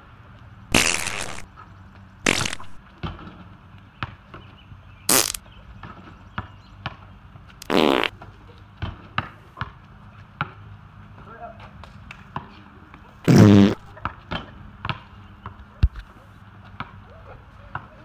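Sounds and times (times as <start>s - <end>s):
fart sounds: 0.7s - 1.4s, 2.3s - 2.8s, 5.1s - 5.4s, 7.6s - 8.2s, 13.3s - 13.9s
basketballs bouncing on concrete: 4.0s - 4.5s, 8.2s - 13.0s, 13.9s - 18.0s.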